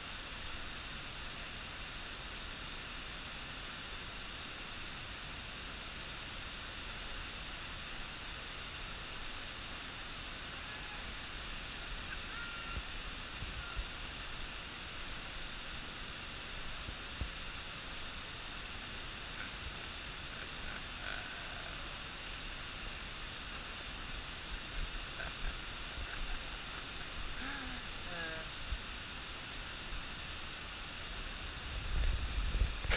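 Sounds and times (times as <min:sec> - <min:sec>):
mountain torrent rushing: 0:00.0 - 0:32.9.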